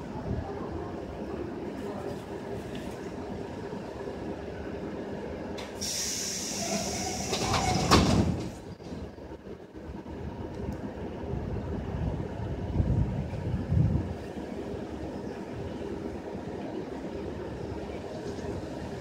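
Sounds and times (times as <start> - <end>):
low hum of standing train: 0.0 - 19.0
train doors banging shut: 5.6 - 9.2
air hissing: 5.7 - 7.9.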